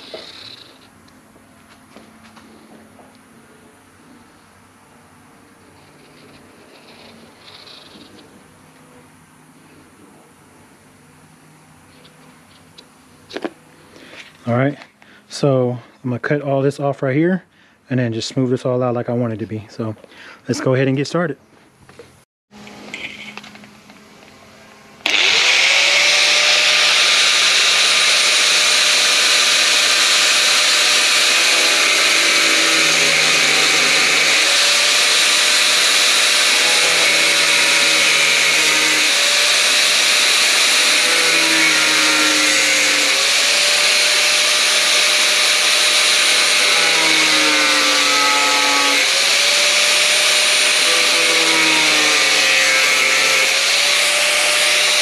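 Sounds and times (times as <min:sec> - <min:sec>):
angle grinder cutting: 0:00.0 - 0:01.0, 0:05.8 - 0:08.3, 0:25.0 - 0:55.0.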